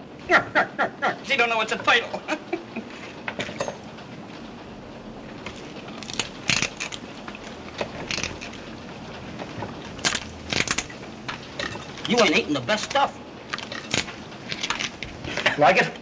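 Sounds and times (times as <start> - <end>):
soundtrack hiss: 0.0 - 16.0
crab shell cracking: 5.5 - 8.7, 10.0 - 12.1, 12.8 - 15.3.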